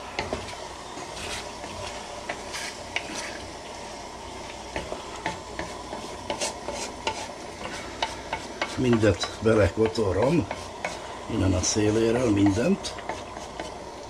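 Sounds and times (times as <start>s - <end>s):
food sizzling: 0.0s - 14.0s
spoon scraping a pot: 4.8s - 11.1s.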